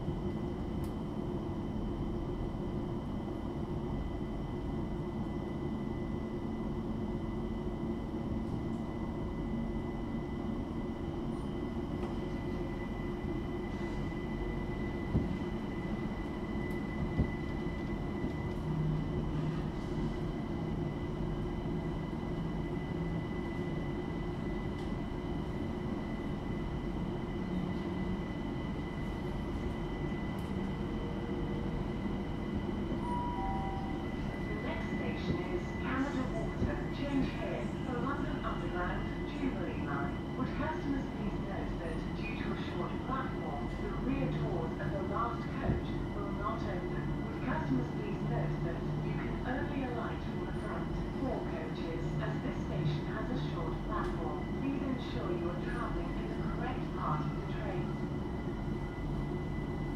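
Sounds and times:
train wheels rumbling on rail: 11.3s - 59.9s.

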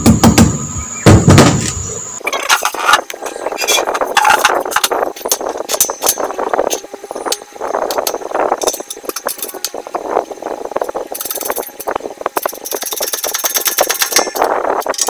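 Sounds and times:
fast rattling ticks: 11.0s - 15.0s.

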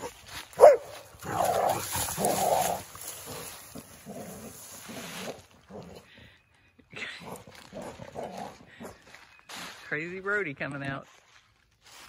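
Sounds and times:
dog barking and yipping: 0.0s - 2.6s.

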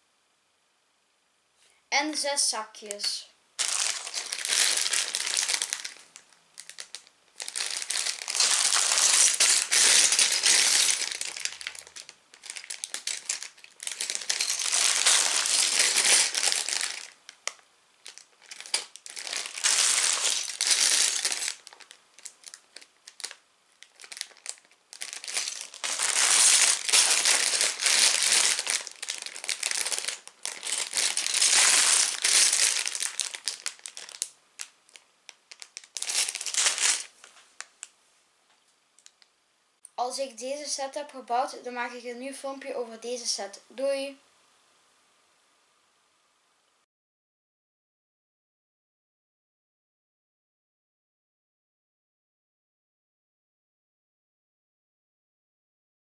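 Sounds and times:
plastic bags crinkling: 3.0s - 37.9s, 39.0s - 39.3s.

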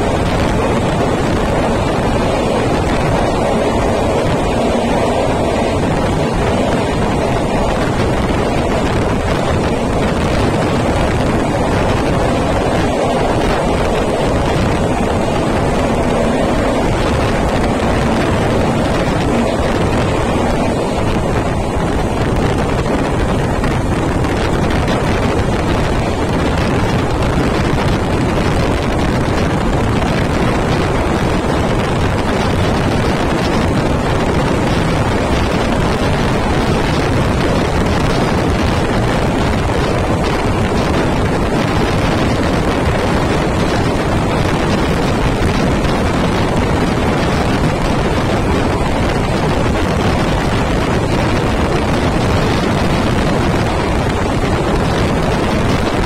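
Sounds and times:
passenger train rumble: 0.0s - 56.0s
wind buffeting microphone: 0.0s - 56.0s.

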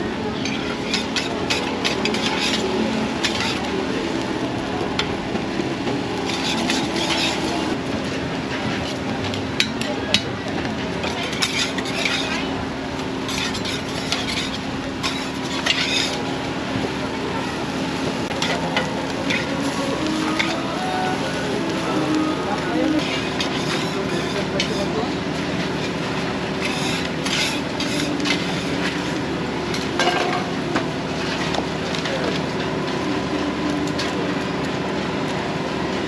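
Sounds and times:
spatulas scraping on a griddle: 0.4s - 4.0s, 6.1s - 7.8s, 11.0s - 12.6s, 13.2s - 16.4s, 18.2s - 31.6s.

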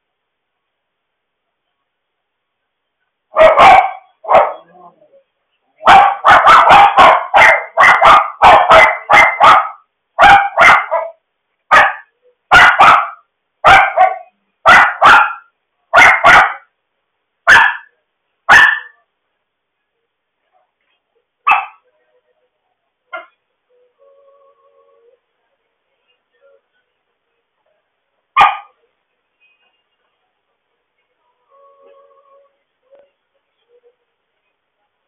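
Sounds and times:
dog barking loudly: 3.3s - 4.7s, 5.8s - 16.7s, 17.5s - 17.9s, 18.5s - 19.0s, 21.5s - 21.8s, 28.4s - 28.8s.

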